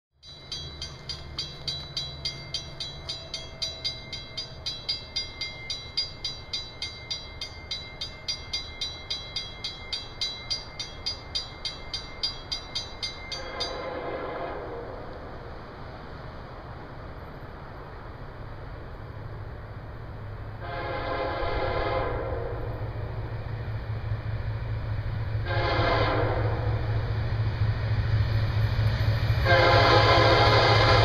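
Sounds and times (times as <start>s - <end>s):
railroad crossing bell ringing: 0.2s - 14.1s.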